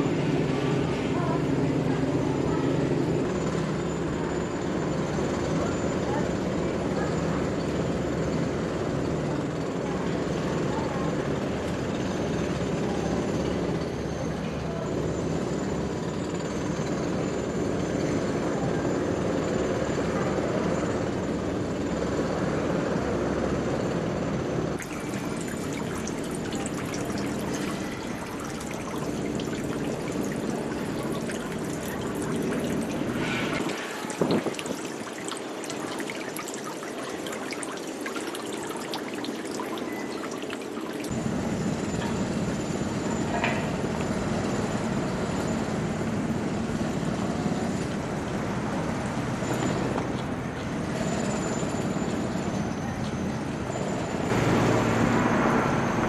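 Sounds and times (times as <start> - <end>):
water splashing into stone basin: 24.8 - 41.1.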